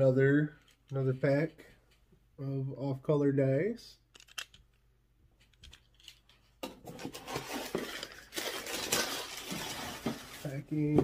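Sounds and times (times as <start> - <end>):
small clicks and knocks: 4.1 - 4.8
packing material rustling: 7.0 - 10.6.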